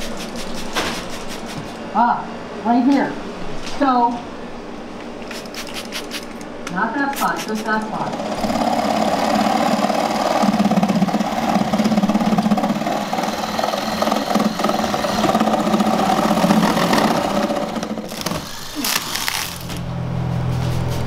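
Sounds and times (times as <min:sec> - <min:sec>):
reciprocating saw cutting wood: 0:08.3 - 0:18.8.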